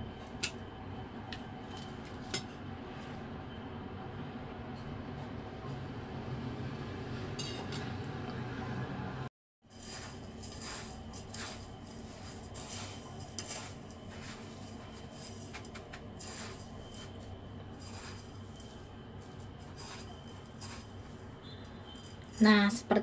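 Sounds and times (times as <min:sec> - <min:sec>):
breadcrumbs rustling and crunching: 0:09.7 - 0:22.5.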